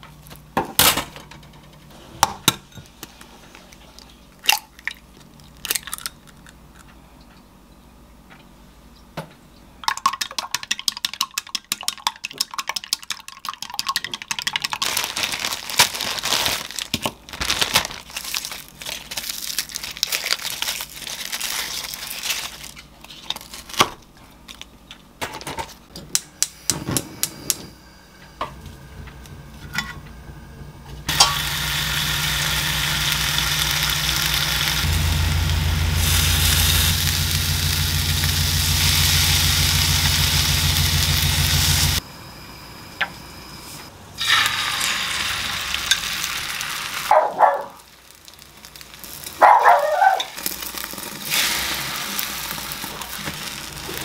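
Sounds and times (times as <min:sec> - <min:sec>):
bacon sizzling in a pan: 0:31.1 - 0:42.0, 0:44.2 - 0:47.1, 0:47.8 - 0:54.0.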